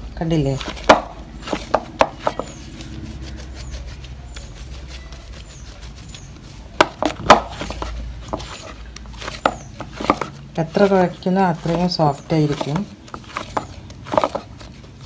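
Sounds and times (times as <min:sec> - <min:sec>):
dough rubbing and pressing: 0:00.0 - 0:15.0
dough knocking against bowl: 0:00.8 - 0:02.6, 0:06.8 - 0:08.5.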